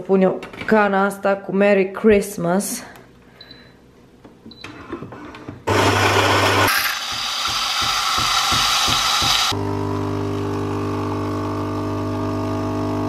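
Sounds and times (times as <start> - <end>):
coffee grinder whirring: 5.7 - 13.0
low motor hum: 9.6 - 13.0.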